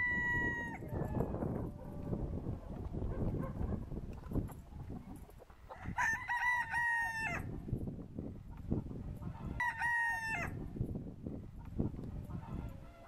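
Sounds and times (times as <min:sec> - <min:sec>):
rooster crowing: 0:00.0 - 0:02.2, 0:05.8 - 0:07.5, 0:09.6 - 0:10.6.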